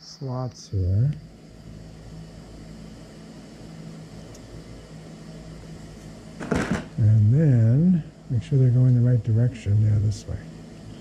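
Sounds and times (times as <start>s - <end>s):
even hiss: 0.0s - 11.0s
steady low hum: 0.0s - 11.0s.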